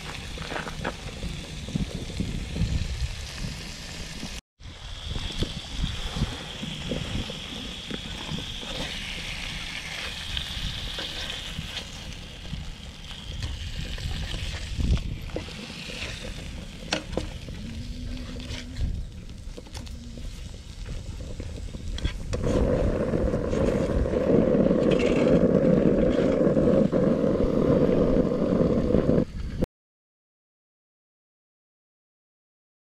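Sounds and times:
fish sizzling in oil: 0.0s - 22.1s
steady rushing noise: 0.0s - 29.6s
spatula scraping a pan: 6.6s - 12.2s, 13.4s - 22.8s.

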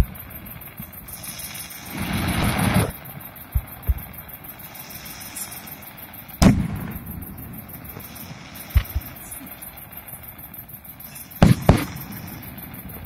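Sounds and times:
rushing firework noise: 0.0s - 13.0s
dull firework thumps: 3.5s - 4.1s, 6.4s - 9.4s, 11.4s - 12.2s.

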